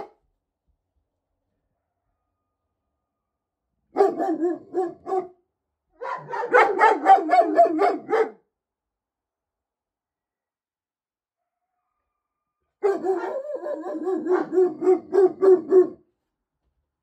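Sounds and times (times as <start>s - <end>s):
dog barking: 3.9s - 5.4s, 6.0s - 8.4s, 12.8s - 16.0s.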